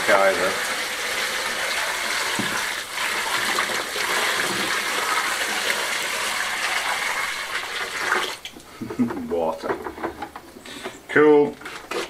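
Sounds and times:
water splashing onto stones: 0.0 - 8.5.

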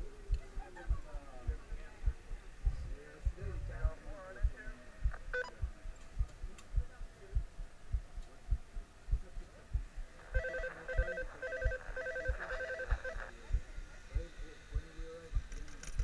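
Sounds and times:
dull low thumps: 0.8 - 10.2
electronic two-tone ringing: 10.3 - 13.2.

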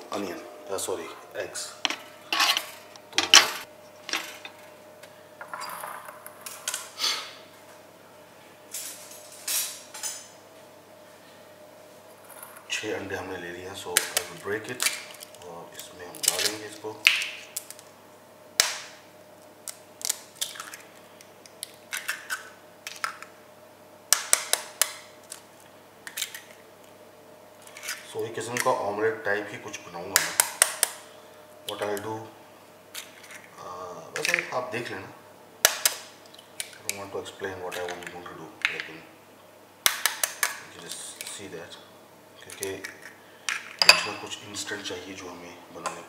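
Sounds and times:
kitchen handling noises: 1.8 - 4.7, 42.4 - 44.4.

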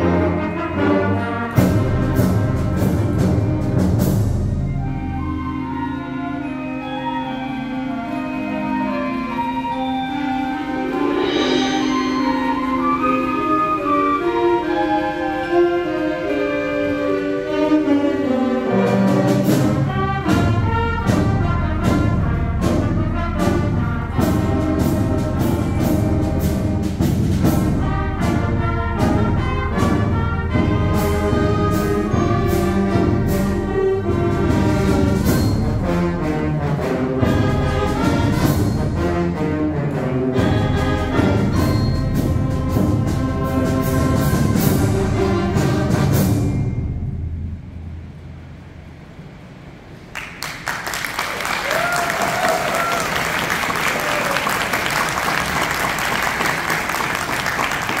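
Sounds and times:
wind orchestra playing: 0.0 - 50.1, 51.1 - 58.0
sharp percussion strokes: 9.4 - 14.6, 18.9 - 39.6.

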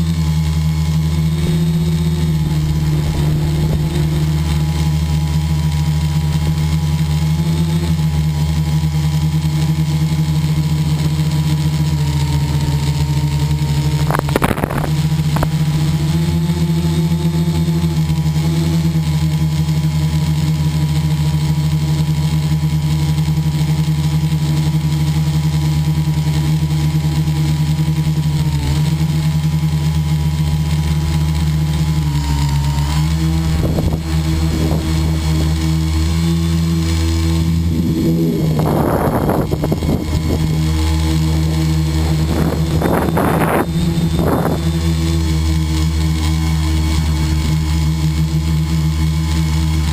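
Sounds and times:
model airplane motor drone: 0.0 - 49.9
crackling rattle: 9.5 - 17.2
wind rushing past microphone: 37.7 - 40.8, 41.9 - 45.0.

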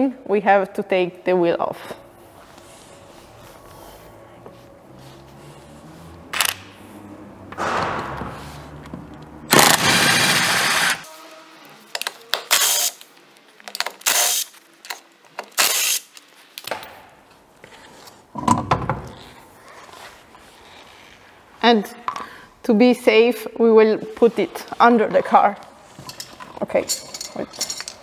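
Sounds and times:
impact wrench hammering and whirring: 7.5 - 8.8, 9.5 - 11.0.

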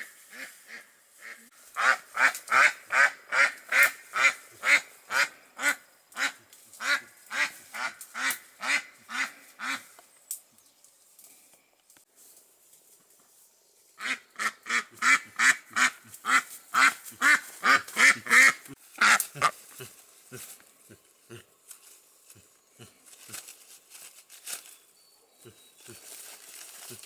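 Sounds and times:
duck quacking: 0.3 - 9.9, 14.0 - 19.6.

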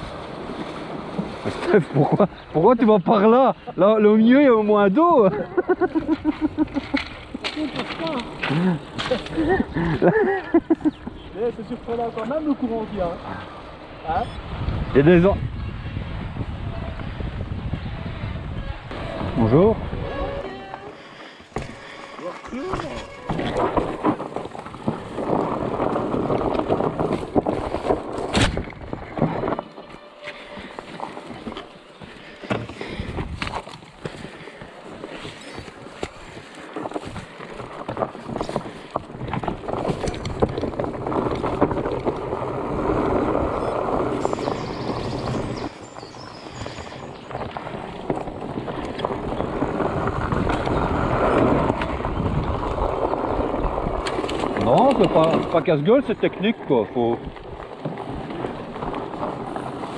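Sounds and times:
bike tyre rumble on dirt: 0.0 - 59.9
bike rattling over bumps: 4.6 - 13.9, 18.9 - 59.9
wind rushing over microphone: 6.0 - 29.7, 36.2 - 59.9.

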